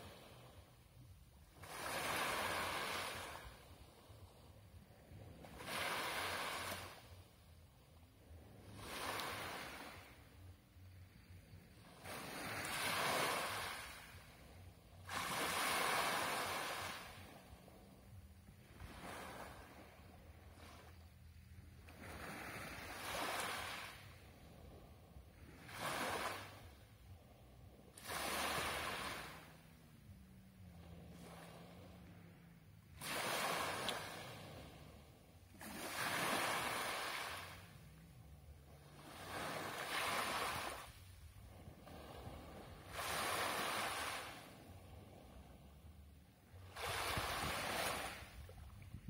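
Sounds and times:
waves washing up pebble beach: 1.6 - 3.6, 12.0 - 14.3, 15.1 - 17.3, 28.0 - 29.6, 33.0 - 34.7, 35.6 - 37.8, 39.0 - 41.0, 42.0 - 44.6, 46.6 - 48.4.

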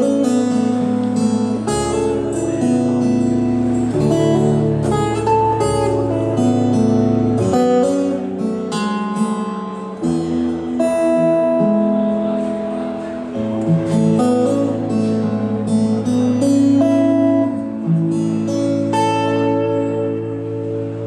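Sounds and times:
fingerstyle acoustic guitar: 0.0 - 21.0.

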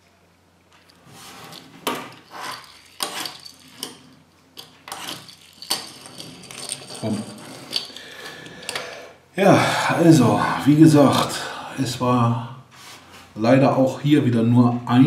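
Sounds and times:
toy scraping on wooden table: 1.1 - 7.9.

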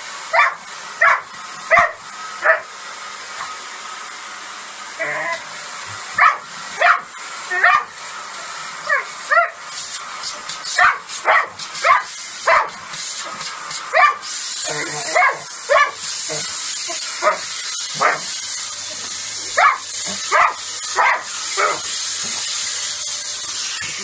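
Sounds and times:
vacuum cleaner hiss: 0.0 - 24.0
dog barking and yipping: 0.3 - 2.7, 6.1 - 8.0, 8.8 - 9.7, 10.7 - 12.8, 13.8 - 14.3, 15.0 - 18.3, 19.5 - 21.9.

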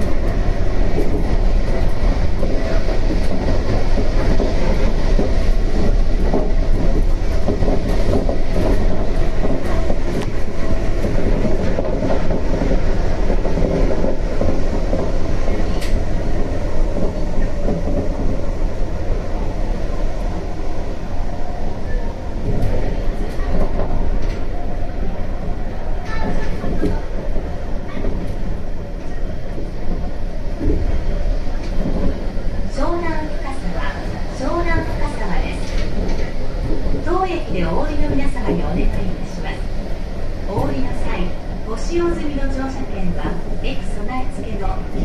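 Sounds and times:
monorail car rumble: 0.0 - 45.0.

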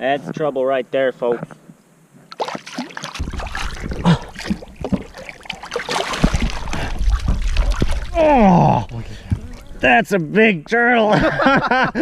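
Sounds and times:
water streaming off turtle: 2.3 - 10.2
water splashing and sloshing: 2.3 - 10.4
low rumble: 6.3 - 9.8.

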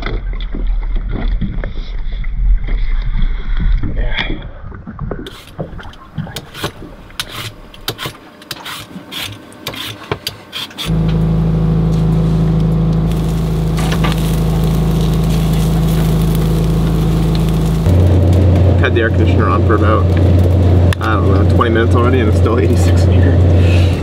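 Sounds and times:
air conditioner humming: 10.9 - 24.0.

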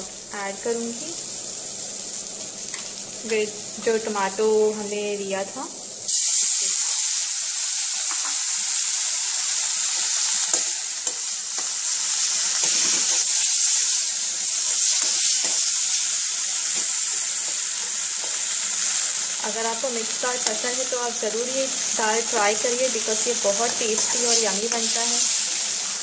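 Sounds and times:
puree sizzling in hot oil: 0.0 - 26.0
steel spoon scraping wok: 23.2 - 25.5.

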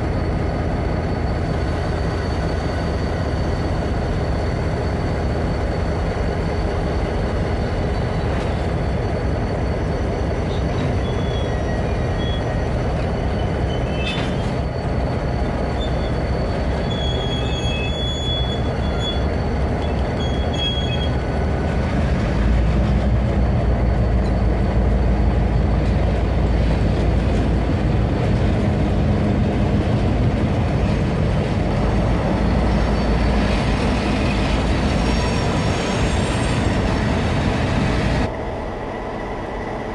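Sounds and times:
diesel locomotive engine rumble: 0.0 - 39.9
high-pitched squeals: 0.2 - 21.3, 32.0 - 38.3.

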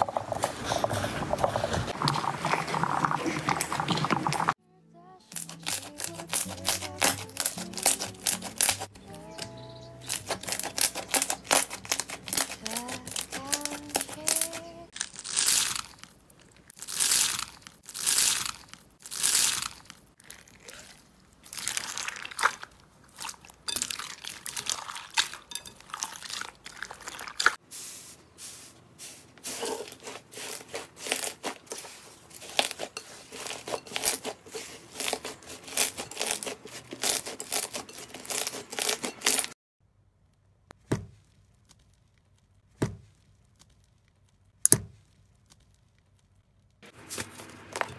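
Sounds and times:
wet slime squelching: 0.0 - 4.6, 10.0 - 27.7, 28.4 - 39.6
slime crackling and popping: 5.4 - 8.9, 10.0 - 26.3, 40.2 - 47.4.

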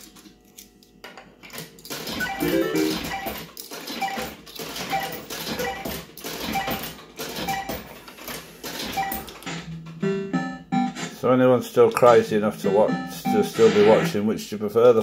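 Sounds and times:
repeating beep: 2.2 - 3.3, 12.6 - 13.9
short electronic tune: 2.4 - 3.1.

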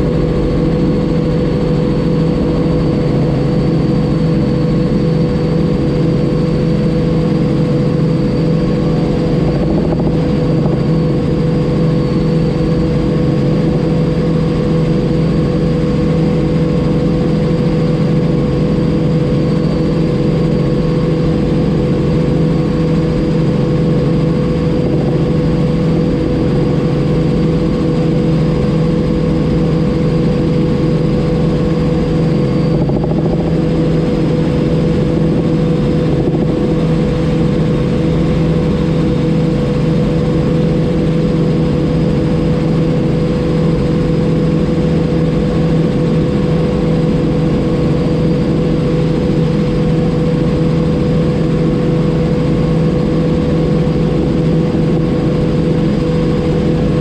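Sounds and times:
helicopter engine and rotors: 0.0 - 57.0.

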